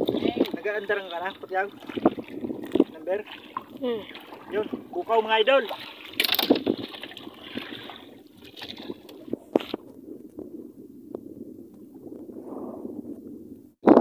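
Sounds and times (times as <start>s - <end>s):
fish splashing and flopping in crate: 0.0s - 9.9s.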